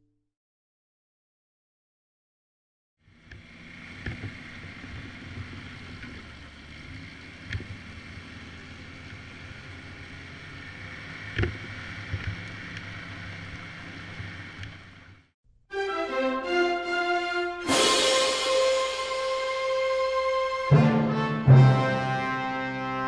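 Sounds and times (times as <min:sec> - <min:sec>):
snowmobile engine running: 0:03.1 - 0:15.2.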